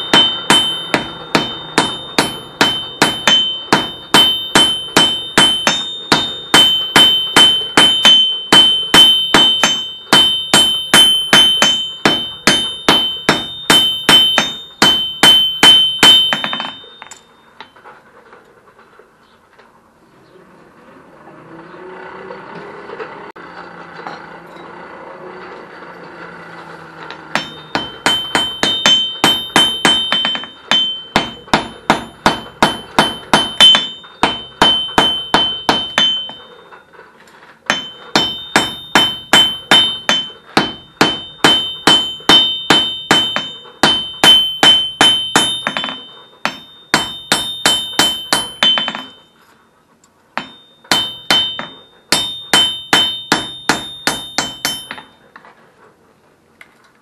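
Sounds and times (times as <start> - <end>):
hammer ringing on anvil: 0.0 - 17.9, 27.0 - 49.6, 50.4 - 55.4.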